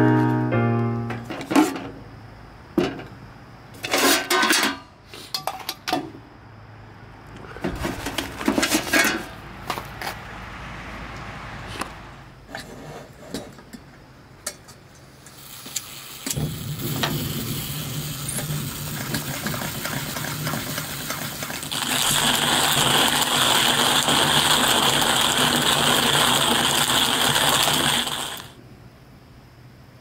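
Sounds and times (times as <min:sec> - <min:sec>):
fuel hissing: 0:15.2 - 0:28.6
stove burner roaring: 0:15.2 - 0:28.6.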